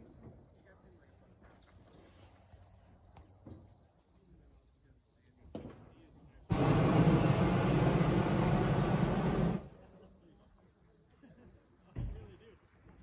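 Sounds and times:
propane burner hissing: 6.5 - 9.9.

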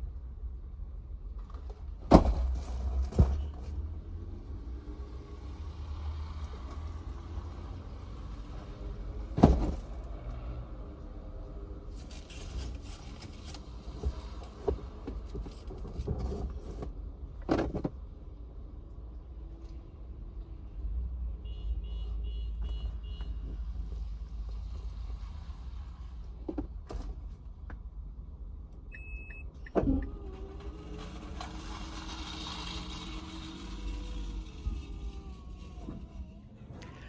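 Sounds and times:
shopping thudding into car boot: 2.0 - 3.6, 9.2 - 10.0.

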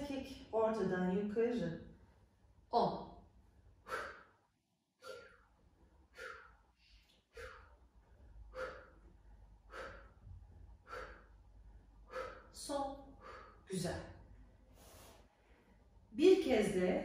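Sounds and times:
woman breathing out: 6.1 - 7.8, 8.4 - 11.4.

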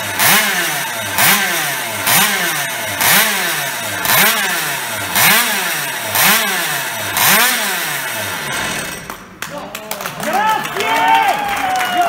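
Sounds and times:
two-stroke engine revving: 0.0 - 9.4.

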